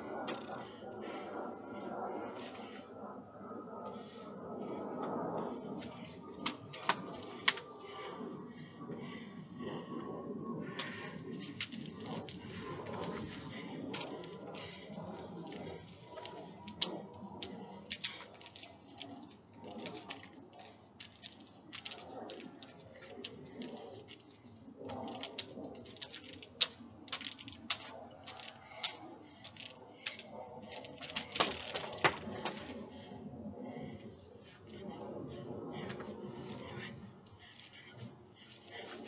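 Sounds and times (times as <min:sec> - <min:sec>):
hula hoop clacking: 0:05.8 - 0:08.2, 0:10.6 - 0:32.8, 0:34.5 - 0:39.0.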